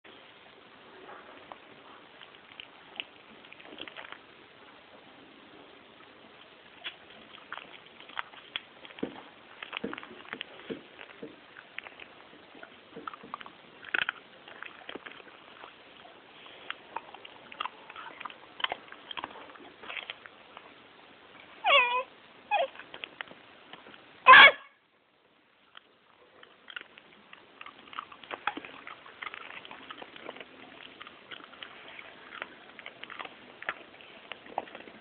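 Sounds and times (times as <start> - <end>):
dog chewing and crunching: 1.0 - 24.4, 25.5 - 35.0
dog short cry: 21.6 - 22.7, 24.3 - 24.7
dog whining: 21.6 - 22.8.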